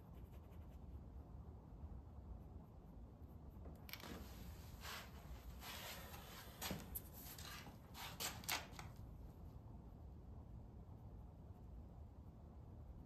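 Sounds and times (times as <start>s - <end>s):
paintbrush strokes: 0.0s - 1.1s, 3.3s - 8.6s.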